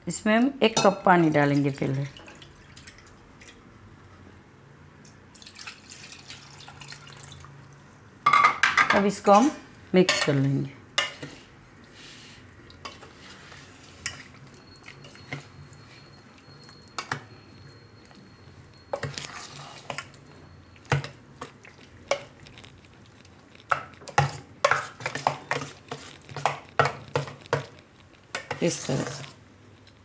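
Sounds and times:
spoon stirring batter in steel bowl: 11.0s - 30.0s.

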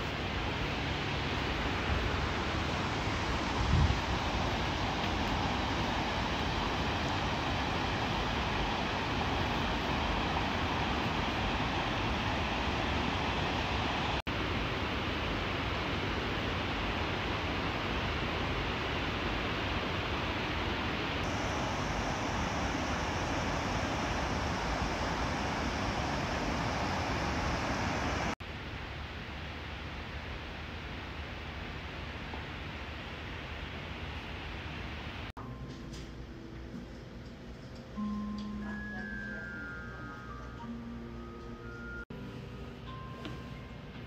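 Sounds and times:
river rushing over weirs: 0.0s - 28.4s
steady hiss: 0.0s - 35.3s.

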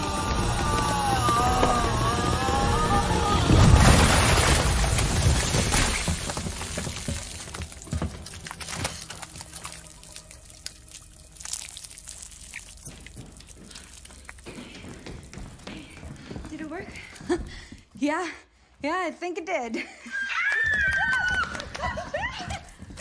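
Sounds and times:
goo dripping and splatting: 3.5s - 15.5s
wet slime splatter: 8.2s - 14.1s.

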